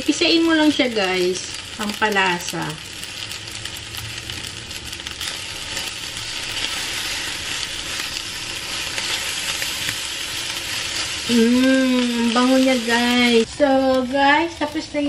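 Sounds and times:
rice sizzling in frying pan: 0.0s - 15.0s
spatula scraping pan: 5.2s - 13.5s.

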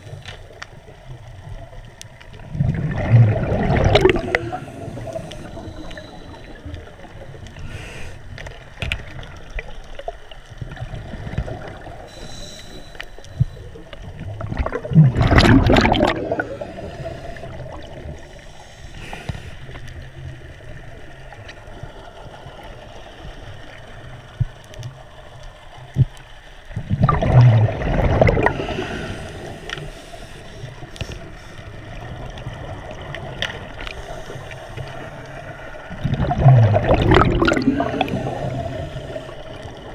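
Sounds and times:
gurgling rush of bubbles: 1.3s - 7.7s, 8.8s - 12.2s, 13.8s - 18.4s, 25.9s - 29.9s, 31.7s - 39.9s
underwater hiss with clicks: 3.8s - 14.2s, 16.0s - 26.8s, 28.2s - 36.3s, 37.3s - 39.9s.

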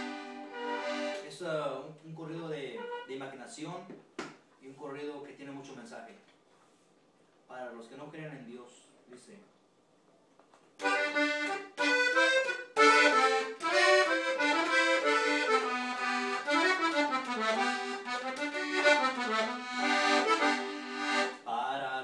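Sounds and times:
accordion playing: 0.0s - 1.4s, 10.8s - 21.5s.

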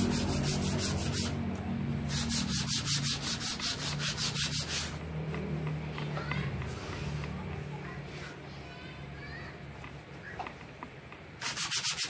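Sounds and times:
sandpaper scratching on wood: 0.0s - 1.4s, 2.1s - 5.0s, 11.4s - 12.0s.

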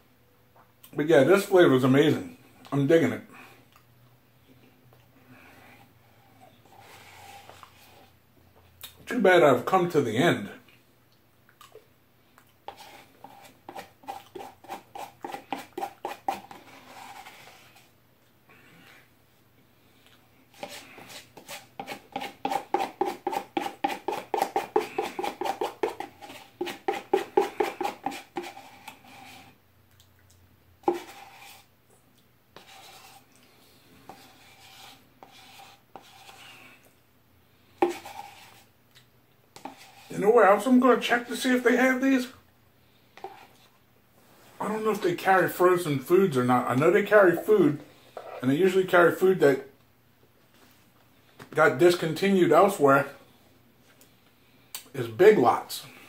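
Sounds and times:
spoon scraping paper carton: 6.4s - 8.2s, 12.7s - 17.9s, 20.5s - 29.6s, 30.8s - 31.7s, 32.6s - 33.3s, 34.0s - 36.9s, 37.8s - 38.7s, 39.6s - 42.3s, 43.2s - 43.7s, 44.6s - 49.3s.

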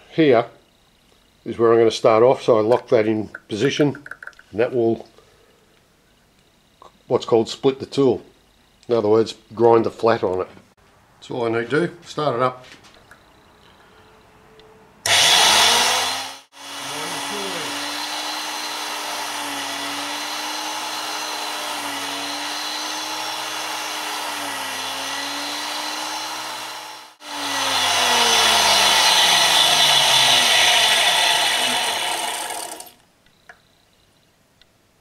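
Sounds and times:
grinder wheel grinding: 15.1s - 33.0s.

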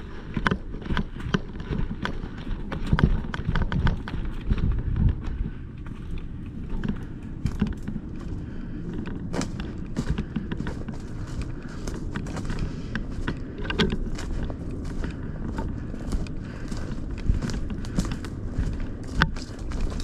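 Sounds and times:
footsteps walking: 0.0s - 20.0s
steady low rumble: 0.0s - 20.0s.

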